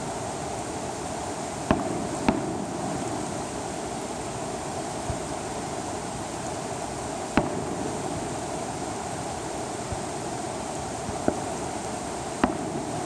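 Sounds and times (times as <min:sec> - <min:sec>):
steady background hiss: 0:00.0 - 0:13.0
distant firework bang: 0:01.7 - 0:03.2, 0:07.4 - 0:08.0, 0:12.4 - 0:12.9.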